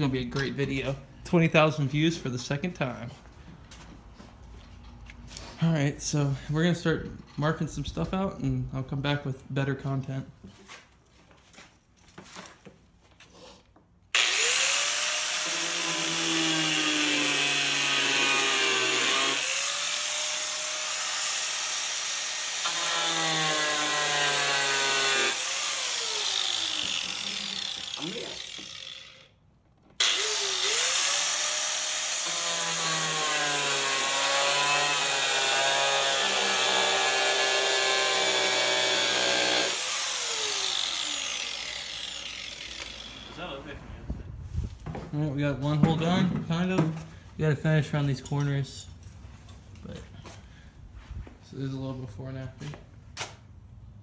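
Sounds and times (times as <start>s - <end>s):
angle grinder cutting plastic: 14.1s - 29.4s, 30.0s - 43.6s.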